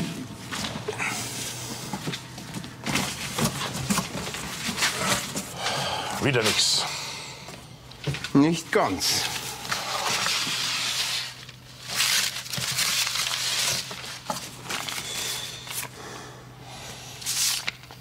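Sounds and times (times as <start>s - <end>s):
paper and cardboard rustling: 1.4s - 5.6s, 8.0s - 15.9s.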